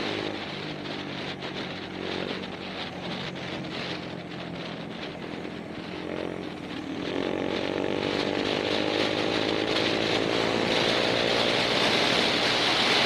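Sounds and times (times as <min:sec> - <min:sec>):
motorcycle engine running: 0:00.0 - 0:13.0
wind rush: 0:00.0 - 0:13.0.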